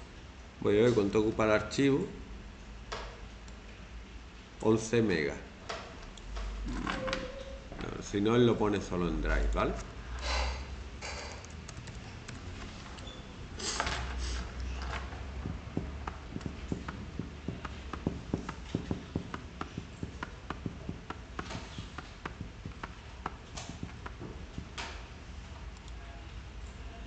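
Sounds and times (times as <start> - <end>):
keyboard keys clicking: 11.4 - 13.0.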